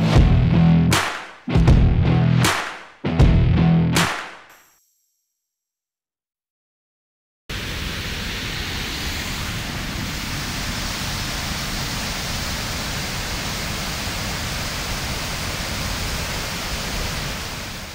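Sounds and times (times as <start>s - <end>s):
waterfall rushing: 7.5s - 17.9s.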